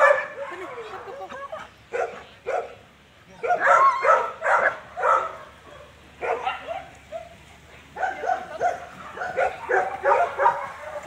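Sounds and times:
dog barking: 0:00.0 - 0:00.8, 0:01.9 - 0:02.8, 0:03.4 - 0:07.4, 0:08.0 - 0:11.0.

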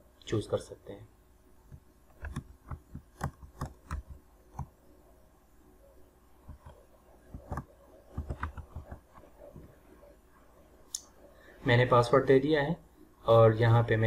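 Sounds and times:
keyboard keys tapping: 0:01.7 - 0:04.7, 0:06.4 - 0:09.8.

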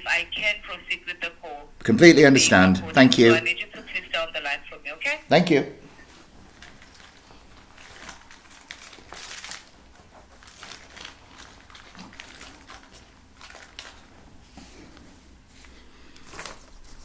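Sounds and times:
faint clicks and rustling: 0:06.1 - 0:17.0.

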